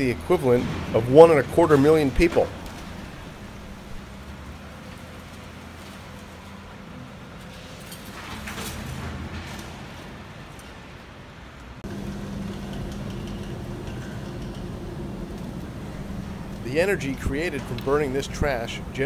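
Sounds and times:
machinery hum with low drone: 0.2s - 10.7s, 11.8s - 19.0s
wheel loader diesel engine: 11.8s - 19.0s.

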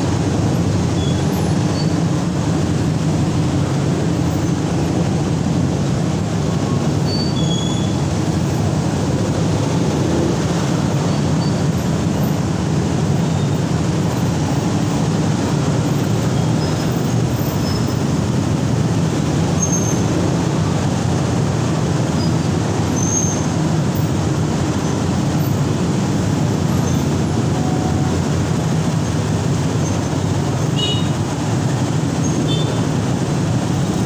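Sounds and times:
drone of traffic engines: 0.0s - 34.0s
brief high squeaks: 7.0s - 8.0s.

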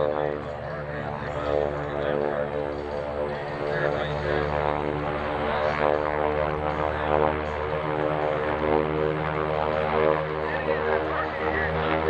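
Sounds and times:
radial aircraft engine running: 0.0s - 12.0s.

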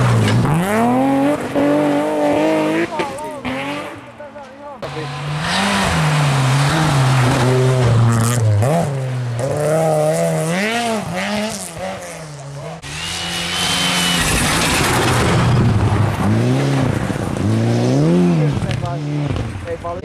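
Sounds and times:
rally car engines revving: 0.0s - 20.0s
high steady engine whine: 12.8s - 16.0s.

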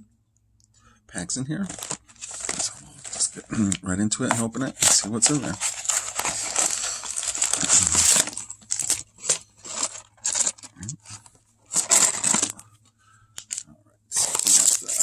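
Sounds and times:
cardboard box scraping and rustling: 4.3s - 10.6s.

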